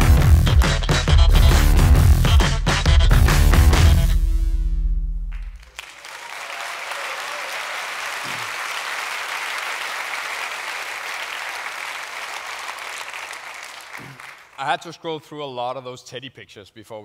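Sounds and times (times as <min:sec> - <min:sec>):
large audience applauding: 0:05.3 - 0:14.6.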